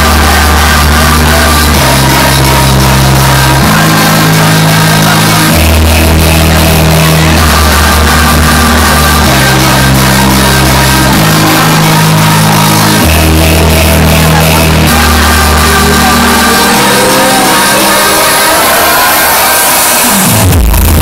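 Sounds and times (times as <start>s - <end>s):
loud electronic dance music: 0.0s - 21.0s.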